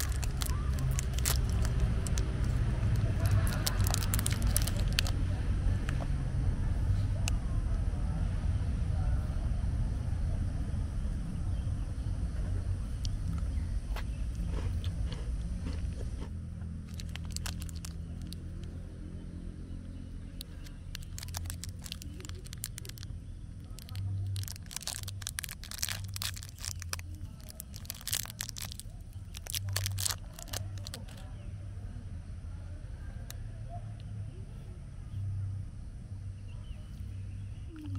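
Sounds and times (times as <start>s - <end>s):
plastic wrapper crinkling: 0.0s - 5.2s, 16.8s - 18.7s, 20.4s - 31.2s
steady low hum: 0.0s - 37.9s.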